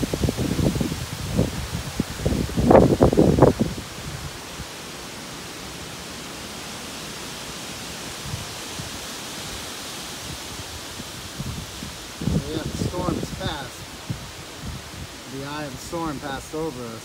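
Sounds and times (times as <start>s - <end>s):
wind buffeting microphone: 0.0s - 4.7s, 10.2s - 16.2s
wind rushing through trees: 0.0s - 17.0s.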